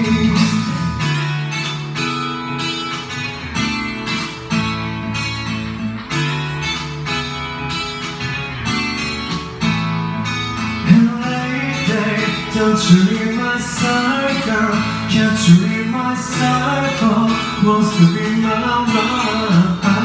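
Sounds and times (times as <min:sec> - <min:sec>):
man singing into microphone: 0:00.0 - 0:01.1, 0:10.8 - 0:20.0
karaoke backing track: 0:00.0 - 0:20.0.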